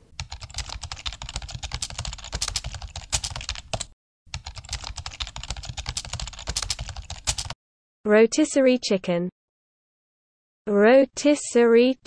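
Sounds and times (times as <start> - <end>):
rapid keyboard typing: 0.2 - 7.6.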